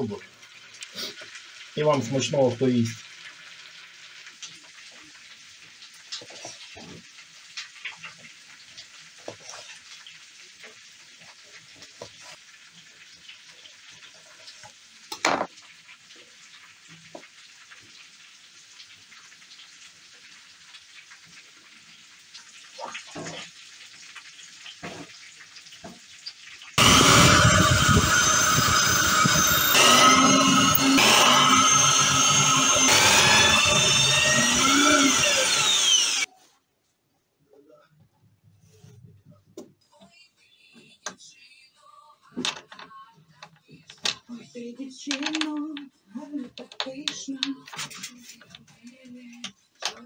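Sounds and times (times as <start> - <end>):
frying sizzle: 0.0 - 30.7
electric drill boring into wood: 26.8 - 36.3.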